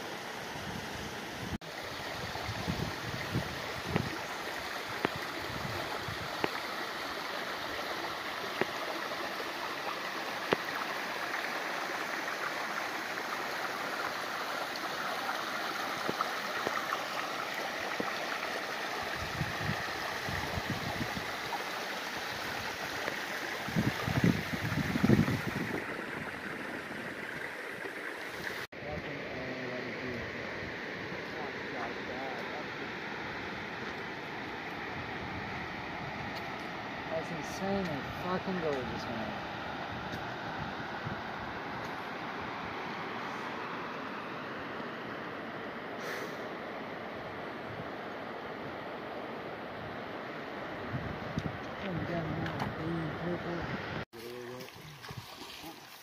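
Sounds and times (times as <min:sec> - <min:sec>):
creek water running over rocks: 0:00.0 - 0:56.0.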